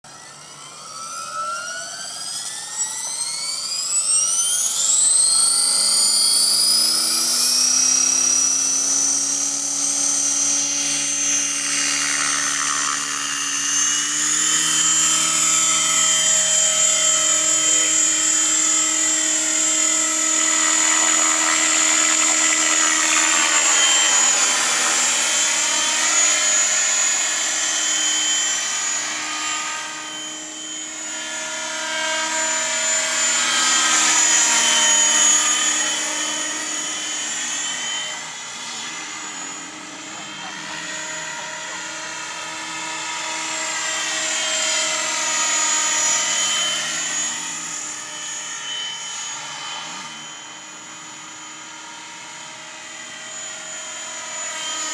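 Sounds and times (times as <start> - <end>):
model helicopter motor whine: 0.0 - 54.9
rotor blades rushing air: 5.6 - 29.0.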